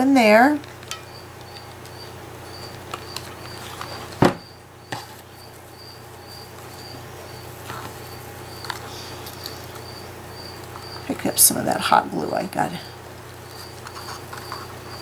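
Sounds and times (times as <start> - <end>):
cricket chirping: 1.0 - 11.1, 13.4 - 15.0.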